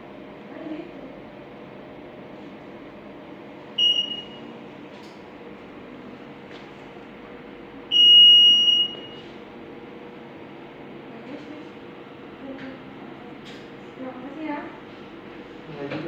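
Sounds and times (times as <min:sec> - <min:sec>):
high-pitched buzzer beeps: 0:03.8 - 0:04.4, 0:07.9 - 0:09.2.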